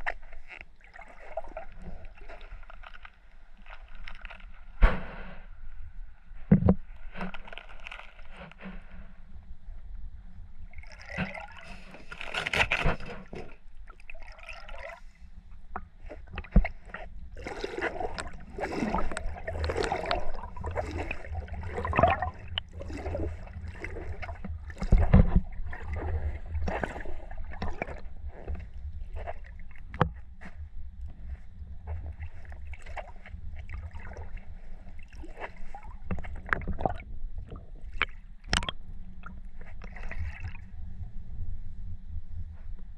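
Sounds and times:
shallow water sloshing and gurgling: 0.0 - 42.9
low rumble: 36.7 - 42.9.

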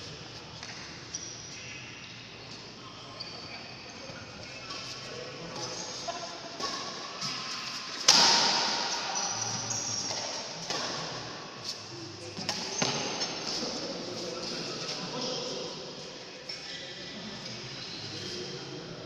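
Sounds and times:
shoes squeaking on court floor: 0.5 - 15.6
shuttlecock hits: 8.0 - 9.1.

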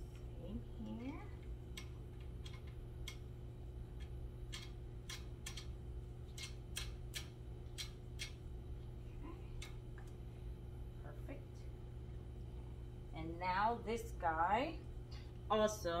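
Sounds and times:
low hum: 0.0 - 16.0
sharp metal clicks: 4.0 - 8.4.

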